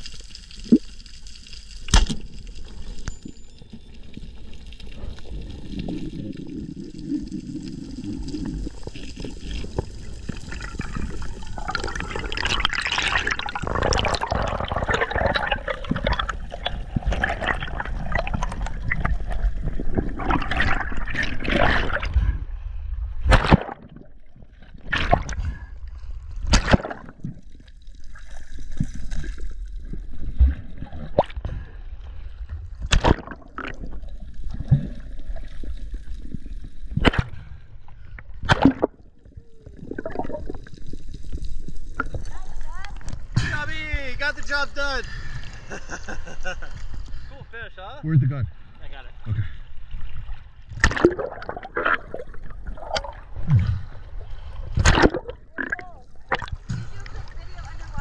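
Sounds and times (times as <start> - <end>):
water swishing and bubbling: 0.0 - 58.0
sharp knocks or splashes: 1.9 - 2.3, 23.2 - 24.0, 26.4 - 27.2, 32.8 - 33.4, 38.4 - 39.0, 50.7 - 52.1, 54.7 - 57.0.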